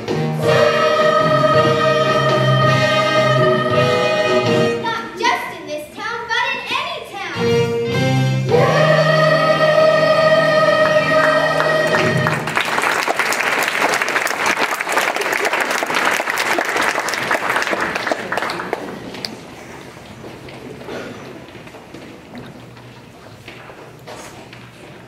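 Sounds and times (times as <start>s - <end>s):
choir singing: 0.3s - 4.8s, 8.4s - 12.5s
audience applauding: 10.8s - 19.5s.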